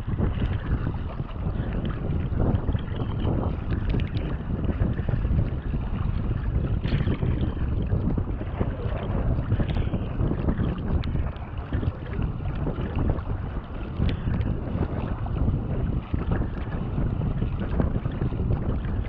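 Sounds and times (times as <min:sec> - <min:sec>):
water rushing and splashing: 0:00.0 - 0:19.0
wind buffeting microphone: 0:00.0 - 0:19.0
sharp splashes and drips: 0:02.8 - 0:04.4, 0:06.8 - 0:15.2.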